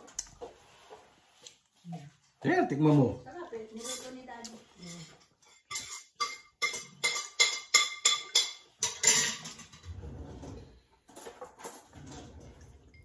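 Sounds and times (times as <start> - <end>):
spoons clinking against plates: 3.7 - 9.9.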